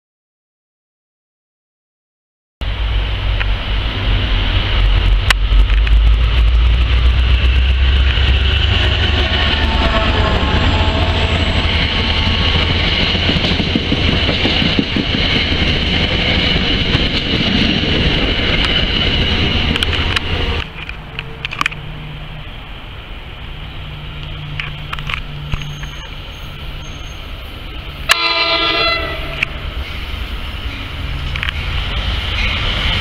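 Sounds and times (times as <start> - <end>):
deep low rumble: 2.6 - 20.6
train wheels rumbling on rail: 2.6 - 33.0.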